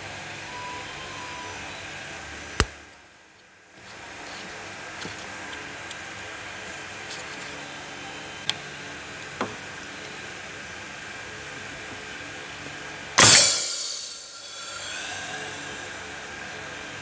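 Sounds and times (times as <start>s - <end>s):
steady hiss: 13.2s - 16.4s
faint high hum: 13.2s - 16.7s.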